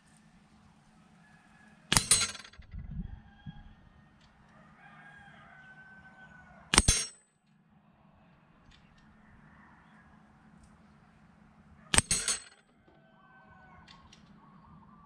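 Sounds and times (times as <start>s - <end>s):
pellets clanging on steel targets: 1.9s - 2.6s, 6.8s - 7.2s, 12.0s - 12.7s
metal paddle clattering: 1.9s - 2.7s, 12.0s - 12.7s.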